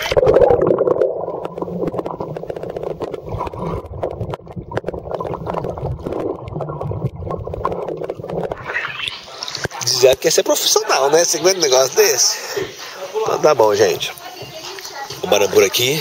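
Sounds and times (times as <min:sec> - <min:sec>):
underwater bubbles and churning water: 0:00.0 - 0:10.4.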